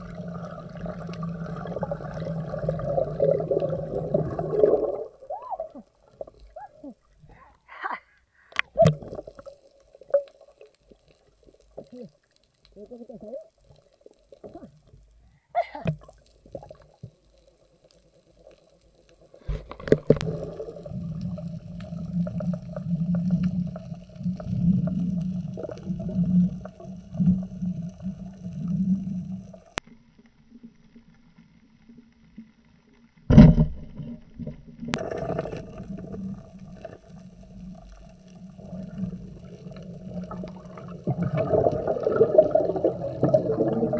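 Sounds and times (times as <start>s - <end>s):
rough bubbling rumble: 0.0s - 6.9s, 19.2s - 29.8s, 33.3s - 43.9s
faint underwater hum: 0.0s - 33.4s, 34.7s - 43.9s.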